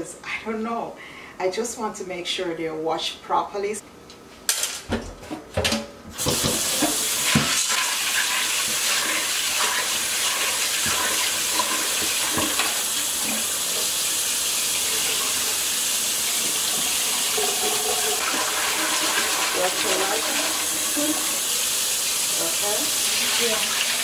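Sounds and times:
tap water running into a pot: 6.2 - 24.0.

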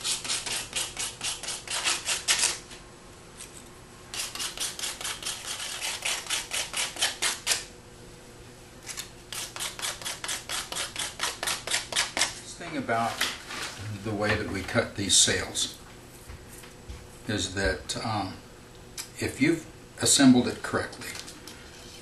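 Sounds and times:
sandpaper scraping rod: 0.0 - 2.6, 4.1 - 7.6, 9.3 - 12.3.

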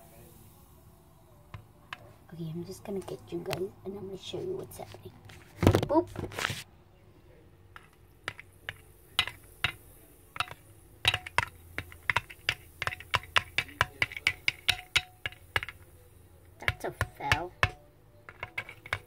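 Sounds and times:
plastic wand clicking against bowl: 7.8 - 19.0.

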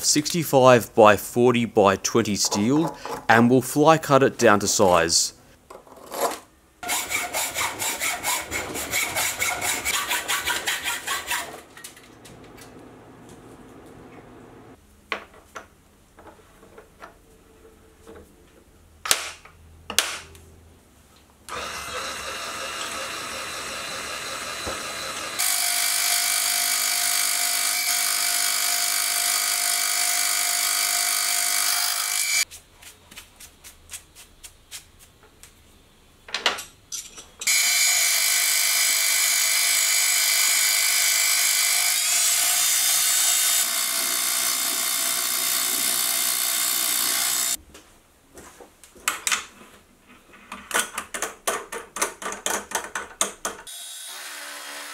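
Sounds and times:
milling machine whine: 21.5 - 25.8.

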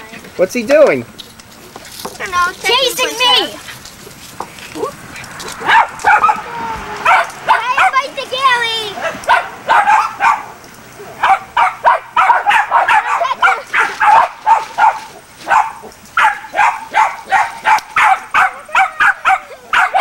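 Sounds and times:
puppy yipping: 4.8 - 8.0, 9.0 - 20.0.

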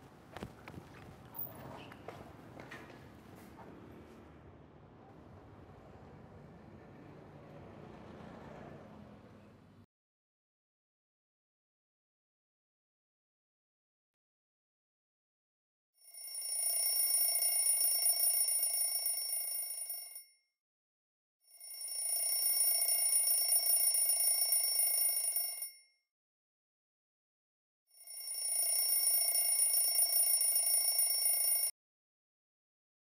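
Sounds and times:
mobile phone ringing: 16.1 - 20.2, 21.6 - 25.8, 28.0 - 31.7.

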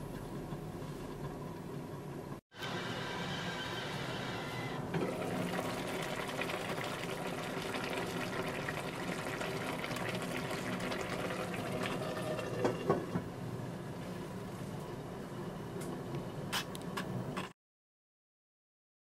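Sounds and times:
stew bubbling in a pot: 5.0 - 13.3.

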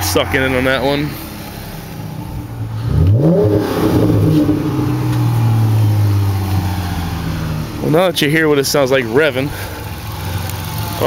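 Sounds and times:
car engine idling: 0.0 - 11.0
engine throttle blip: 2.8 - 6.6.

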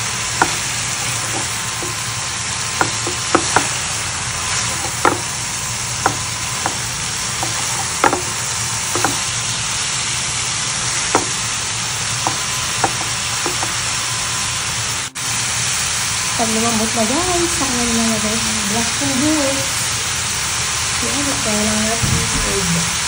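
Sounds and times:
food sizzling in a pan: 0.0 - 23.0
spatula clicking and tapping: 0.4 - 2.2, 2.8 - 3.9, 4.5 - 5.4, 6.0 - 9.4, 11.1 - 11.5, 12.2 - 13.8.

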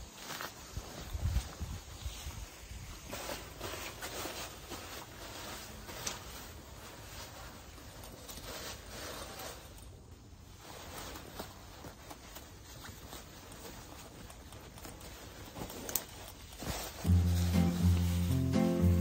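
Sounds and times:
faint rustling: 0.0 - 19.0.

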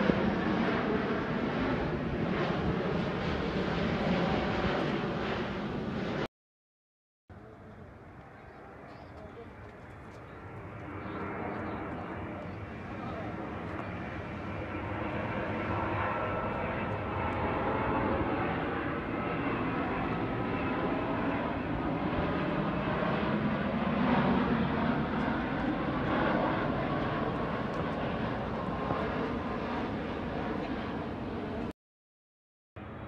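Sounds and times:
jet airliner passing overhead: 0.0 - 6.3, 7.3 - 31.7, 32.8 - 33.0.

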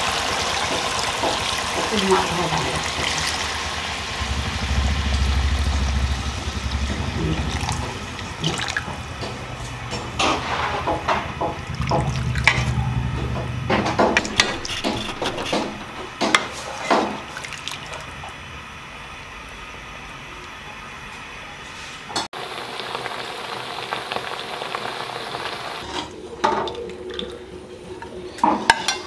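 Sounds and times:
water pouring from a jug: 7.4 - 9.0, 17.3 - 18.2
metal ladle scraping a pan: 9.6 - 11.1, 13.8 - 17.0.

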